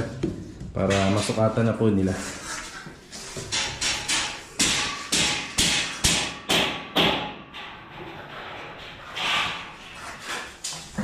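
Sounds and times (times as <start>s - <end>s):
hammer blows ringing: 3.6s - 7.4s.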